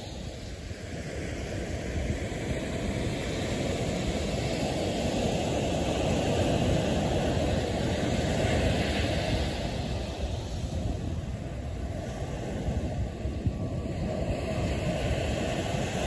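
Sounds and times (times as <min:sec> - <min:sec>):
ocean surf breaking: 0:00.0 - 0:16.0
wind rumble on microphone: 0:00.0 - 0:16.0.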